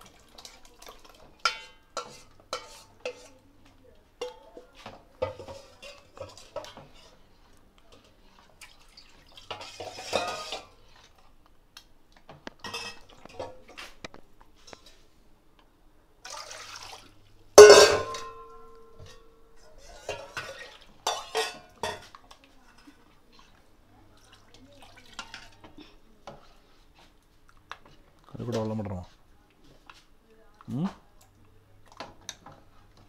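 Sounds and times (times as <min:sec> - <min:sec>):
metal spoon scraping steel pot: 0:01.4 - 0:03.4, 0:09.5 - 0:10.8, 0:19.0 - 0:23.0
steel vessel clanging: 0:17.6 - 0:22.0.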